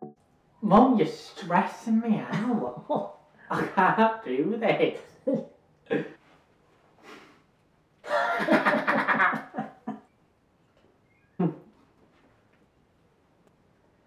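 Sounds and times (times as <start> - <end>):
man laughing: 8.0 - 10.0
short vocal sound: 11.4 - 11.8.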